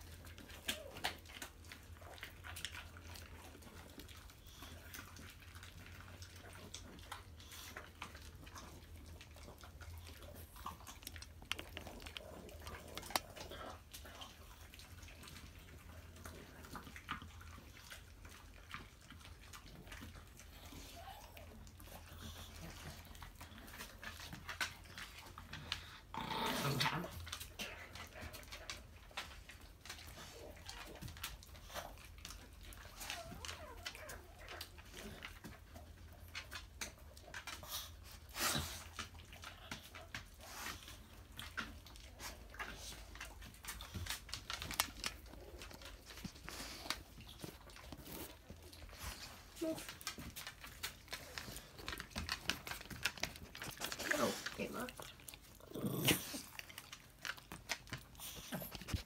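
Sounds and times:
dogs snuffling: 0.0 - 59.0
breathy dog sound: 37.3 - 59.0.

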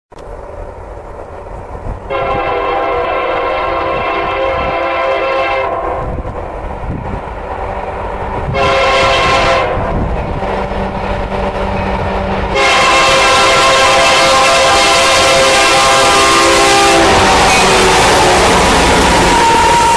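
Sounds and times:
locomotive engine rumble: 0.1 - 19.9
locomotive horn blasts: 2.1 - 6.1, 8.5 - 19.9.

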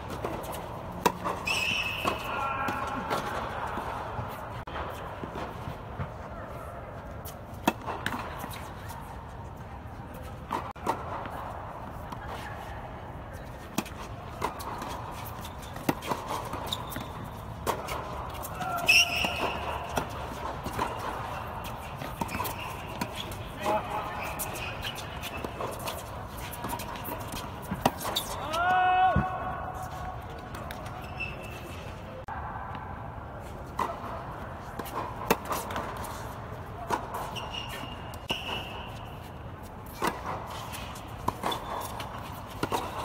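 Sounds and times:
tennis ball hits and bounces: 0.0 - 6.2, 13.6 - 28.4, 33.7 - 43.0
shoe squeak: 1.2 - 3.1, 14.6 - 28.5, 30.8 - 32.1, 35.6 - 43.0.

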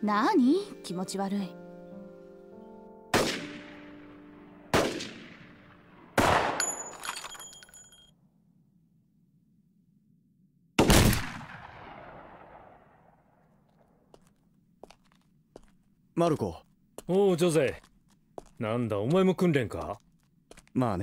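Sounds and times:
rifle shots with echo: 3.1 - 7.0, 10.8 - 13.5
light metallic clinks: 6.6 - 8.1.

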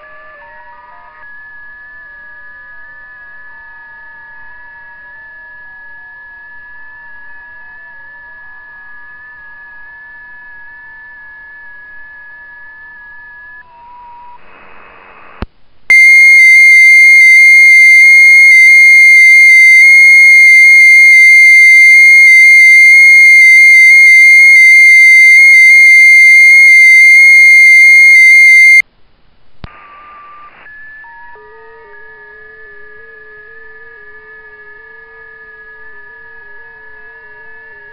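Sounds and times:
faint steady tones: 6.4 - 28.8.

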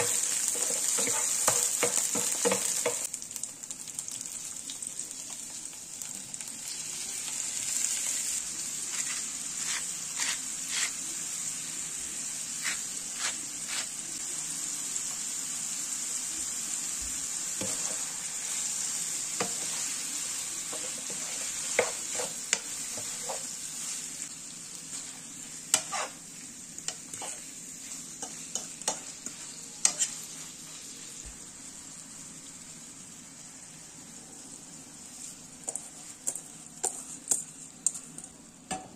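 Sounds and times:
food sizzling in hot oil: 0.0 - 38.9.

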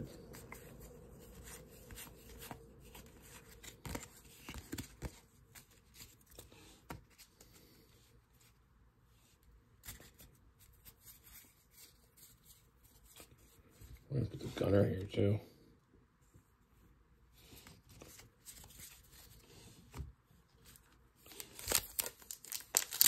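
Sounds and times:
paper cards rustling and flicking: 0.1 - 7.6, 20.6 - 23.0.

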